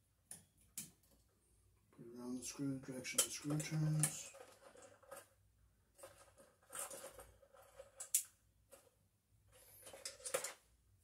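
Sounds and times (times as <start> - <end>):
pliers clicking and scraping wire: 3.0 - 5.3, 6.0 - 8.9.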